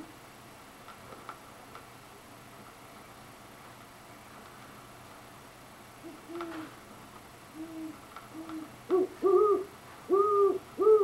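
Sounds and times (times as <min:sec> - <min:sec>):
owl hooting: 0:06.0 - 0:06.8, 0:07.5 - 0:11.0.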